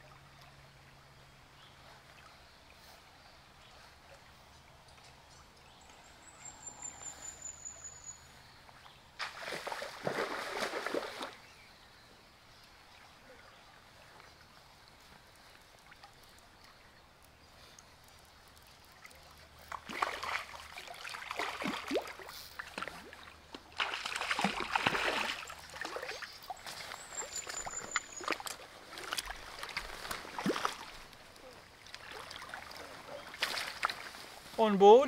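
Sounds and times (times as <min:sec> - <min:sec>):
faint stream flowing: 0:00.0 - 0:35.0
fish thrashing and splashing: 0:19.6 - 0:31.1.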